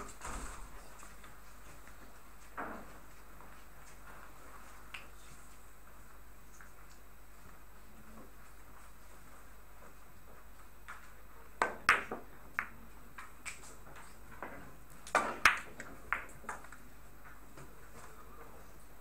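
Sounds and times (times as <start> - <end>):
billiard balls clicking: 11.6 - 16.8.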